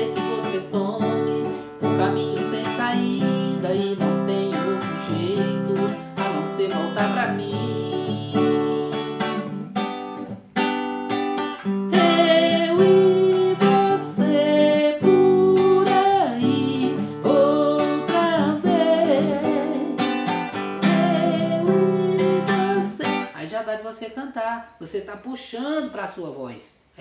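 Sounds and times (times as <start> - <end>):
man singing: 0.0 - 9.3, 11.9 - 24.0
acoustic guitar strumming: 0.0 - 23.4.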